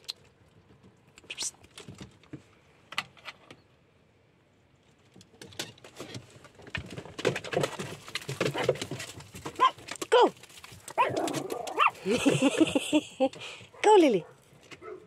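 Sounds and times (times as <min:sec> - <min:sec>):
dogs' claws scrabbling on gravel: 0:05.2 - 0:15.0.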